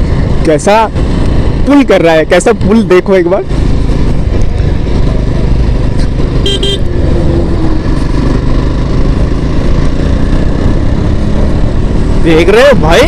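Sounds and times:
motorcycle engine at road speed: 0.0s - 13.0s
vehicle horn beeps: 6.4s - 6.9s.

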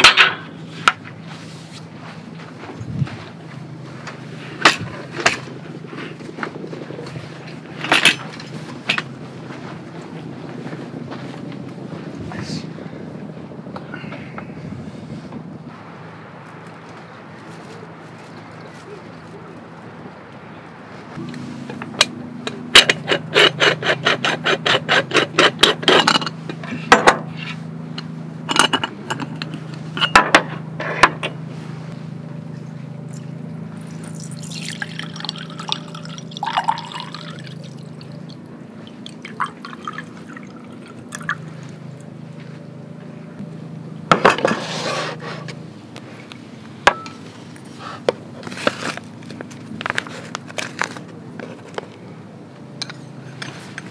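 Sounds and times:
liquid pouring: 33.8s - 41.6s.

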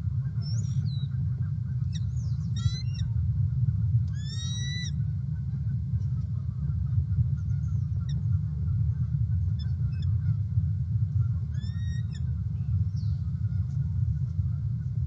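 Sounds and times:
distant bird calls: 0.0s - 15.0s
steady low rumble: 0.0s - 15.0s
rising bird call: 1.9s - 3.1s, 4.2s - 5.0s, 11.5s - 12.3s.

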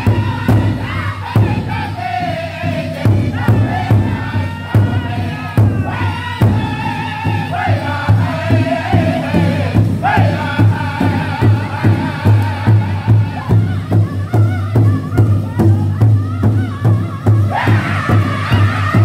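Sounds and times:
large hand drum beating: 0.0s - 19.0s
men singing together: 0.0s - 19.0s.

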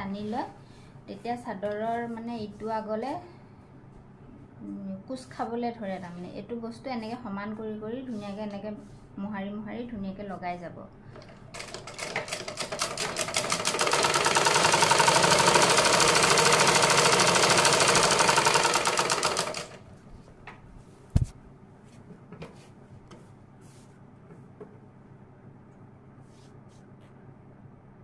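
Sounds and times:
sewing machine stitching: 11.2s - 19.8s.

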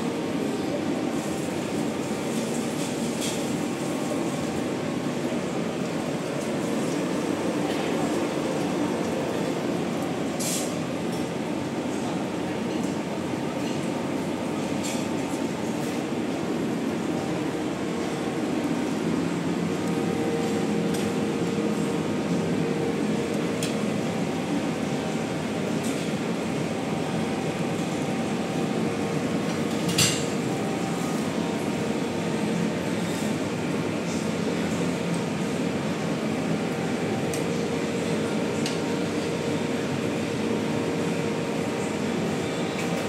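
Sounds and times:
restaurant room noise: 0.0s - 43.0s
ventilation rushing with low hum: 15.4s - 42.4s.

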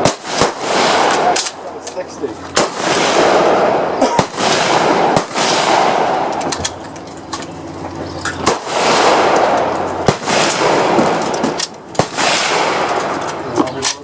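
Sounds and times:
rifle shots with echo: 0.0s - 1.7s, 2.5s - 6.4s, 8.4s - 13.2s
fainter distant shots: 0.0s - 6.9s, 8.4s - 13.8s.

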